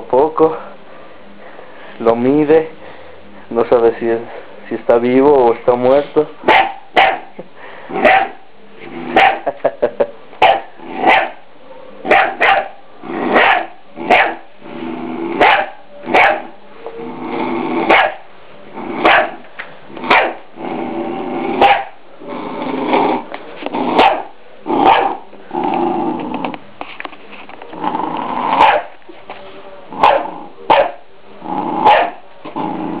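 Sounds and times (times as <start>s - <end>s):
puppy barking: 6.4s - 7.4s, 8.0s - 8.4s, 9.1s - 9.6s, 10.4s - 11.4s, 12.0s - 14.5s, 15.4s - 16.6s, 17.9s - 18.2s, 19.0s - 19.4s, 20.0s - 20.4s, 21.6s - 22.0s, 23.9s - 25.2s, 28.6s - 28.9s, 30.0s - 31.0s, 31.8s - 32.2s
puppy growling: 10.6s - 11.3s, 13.0s - 15.6s, 17.0s - 18.1s, 18.7s - 19.4s, 20.0s - 26.6s, 27.7s - 28.9s, 29.9s - 33.0s.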